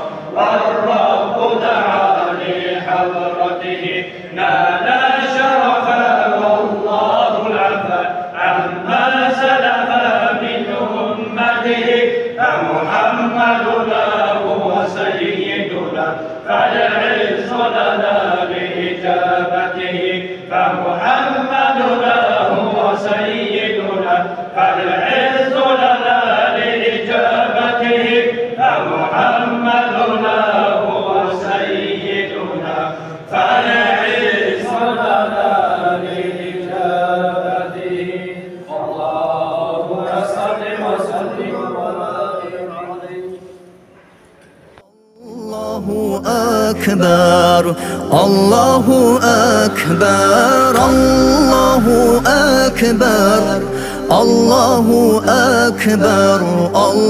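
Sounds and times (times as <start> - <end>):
men chanting a hymn: 0.0 - 43.6, 45.3 - 57.0.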